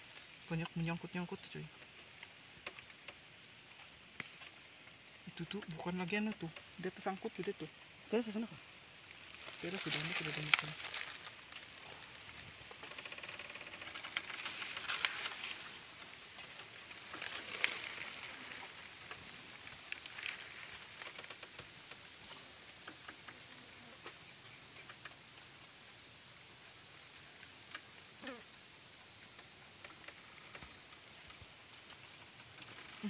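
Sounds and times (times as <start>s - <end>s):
dry leaves crackling and rustling: 2.0s - 22.6s, 29.2s - 33.0s.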